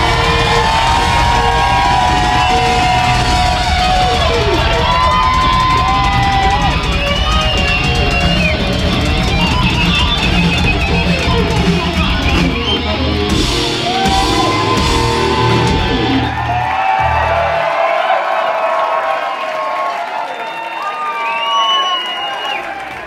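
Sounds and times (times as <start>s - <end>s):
distorted electric guitar: 0.0s - 17.6s
bass: 0.0s - 17.8s
heavy drums: 0.0s - 18.0s.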